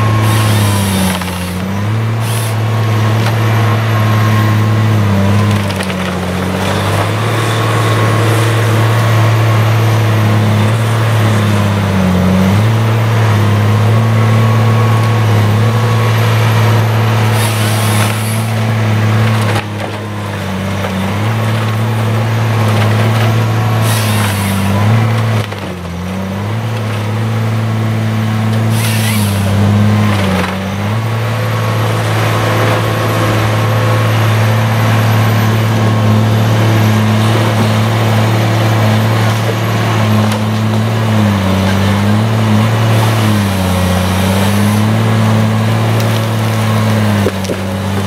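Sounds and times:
diesel engine running: 0:00.0 - 0:48.0
bursts of hissing: 0:02.2 - 0:02.6, 0:28.7 - 0:29.5.

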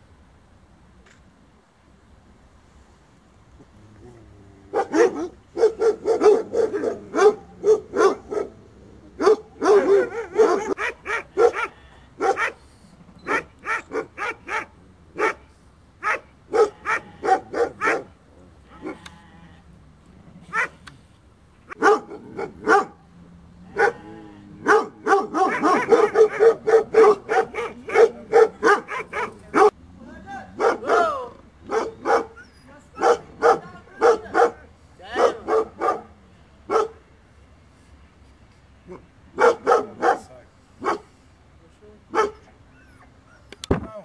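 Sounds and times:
dogs barking: 0:04.7 - 0:19.1, 0:20.4 - 0:20.8, 0:21.7 - 0:23.1, 0:23.7 - 0:29.8, 0:30.5 - 0:37.0, 0:38.9 - 0:41.2, 0:42.1 - 0:43.4.

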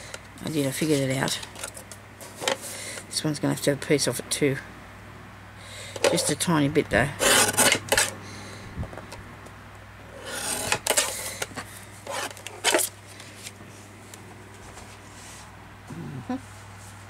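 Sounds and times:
steady low hum: 0:00.0 - 0:17.0
paper scraping: 0:07.2 - 0:08.2, 0:10.1 - 0:12.9.

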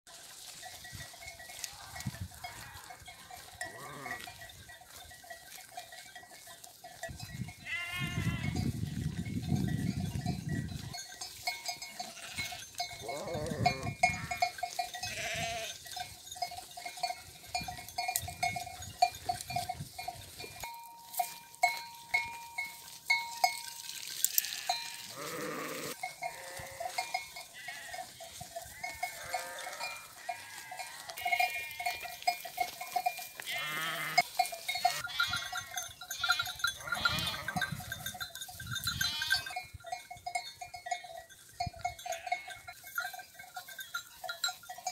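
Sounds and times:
sheep bells clanking: 0:00.1 - 0:44.9
sheep bleating: 0:01.7 - 0:04.4, 0:07.6 - 0:08.6, 0:11.9 - 0:15.8, 0:24.2 - 0:32.1, 0:33.4 - 0:37.7, 0:38.9 - 0:39.6.

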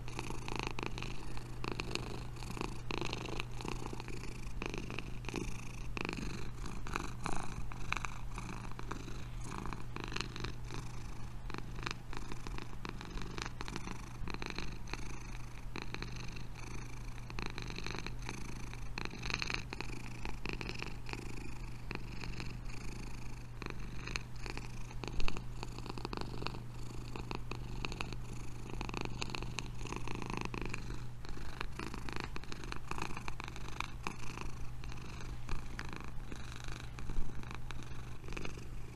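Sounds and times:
cat purring: 0:00.0 - 0:38.9.

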